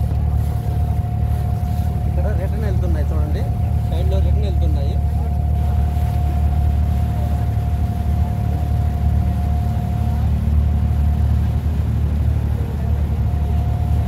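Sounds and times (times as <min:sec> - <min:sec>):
boat diesel engine rumbling: 0:00.0 - 0:14.0.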